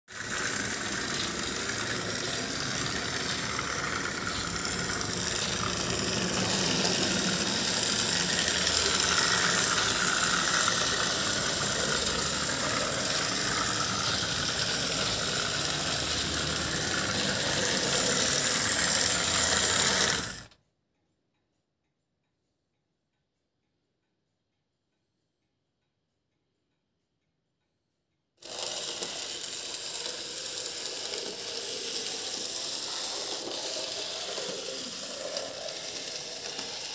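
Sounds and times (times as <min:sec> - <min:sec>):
model locomotive whirring and rattling: 0:00.1 - 0:20.5, 0:28.4 - 0:36.9.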